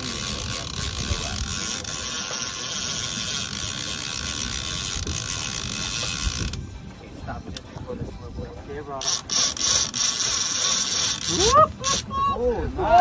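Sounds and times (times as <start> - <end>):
fishing reel ratchet clicking: 0.0 - 6.6, 9.0 - 12.1.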